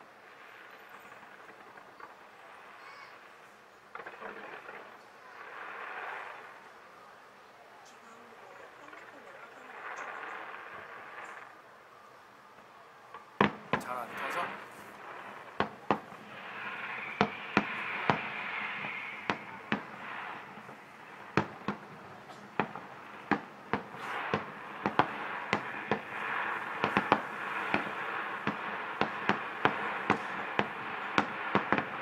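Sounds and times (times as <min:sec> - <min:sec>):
fireworks bursting in the distance: 0:00.0 - 0:32.0
steady background hiss: 0:00.0 - 0:32.0.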